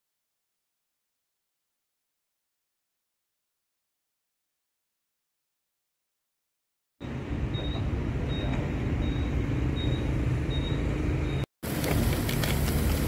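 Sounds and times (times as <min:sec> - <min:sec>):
low rumble of traffic: 0:07.0 - 0:13.0
faint high chirp: 0:07.5 - 0:11.5.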